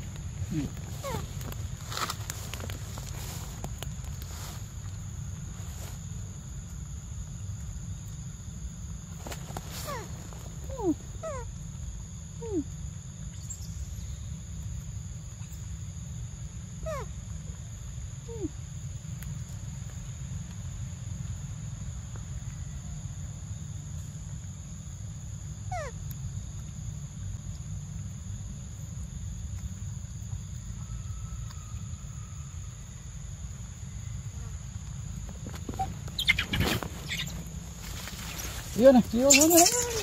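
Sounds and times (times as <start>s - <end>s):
high insect drone: 0.0s - 40.0s
downward-sliding animal calls: 38.0s - 40.0s.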